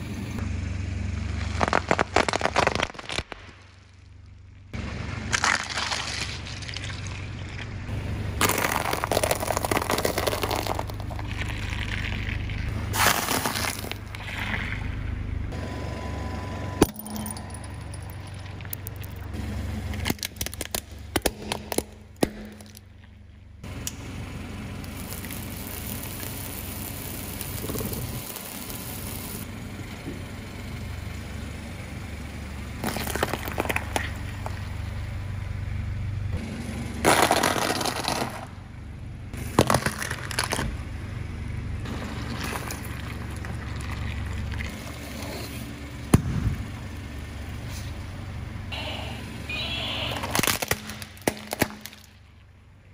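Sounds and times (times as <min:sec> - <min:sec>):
low car hum: 0:00.0 - 0:52.9
tyre crushing objects: 0:08.4 - 0:14.3, 0:37.0 - 0:38.5.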